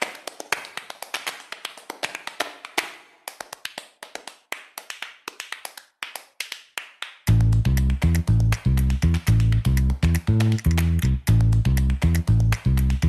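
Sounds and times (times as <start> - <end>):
sharp percussive taps: 4.8 - 13.0
music with bass and guitar: 7.3 - 13.0.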